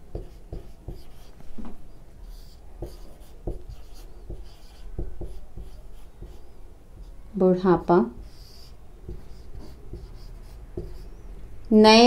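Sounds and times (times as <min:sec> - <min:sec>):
marker scratching on whiteboard: 0:00.0 - 0:11.7.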